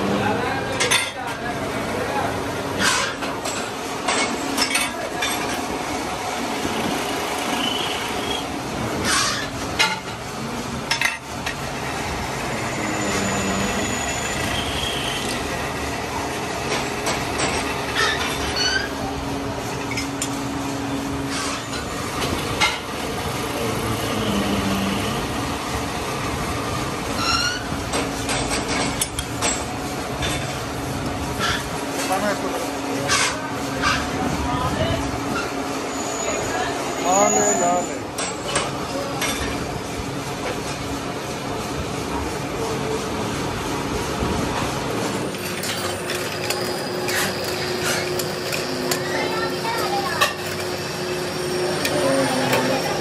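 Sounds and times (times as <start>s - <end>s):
metal lathe drone: 6.5s - 27.6s, 44.9s - 53.0s
short rising squeaks: 27.1s - 27.7s.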